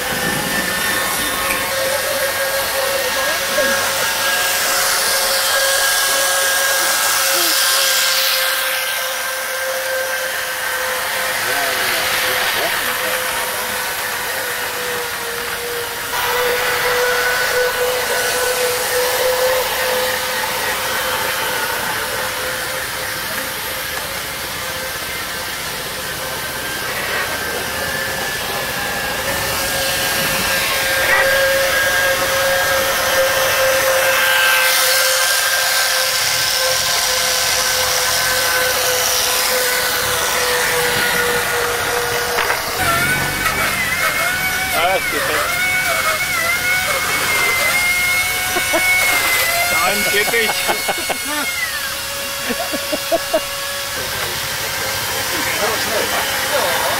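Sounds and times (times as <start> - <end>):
model car electric motors whining: 0.0 - 56.9.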